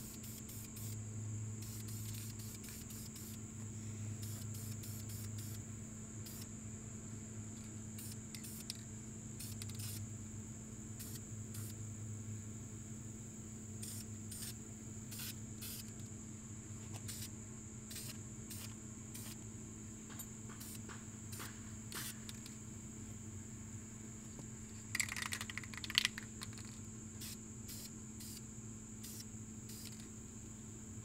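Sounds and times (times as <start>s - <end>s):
spray paint hissing: 0.0s - 1.0s, 1.6s - 3.4s, 4.2s - 5.6s, 6.2s - 6.5s, 8.0s - 8.8s, 9.4s - 10.0s, 11.0s - 11.8s, 13.8s - 15.9s, 17.0s - 17.3s, 17.9s - 19.4s, 20.5s - 22.5s, 24.9s - 28.4s, 29.0s - 30.0s.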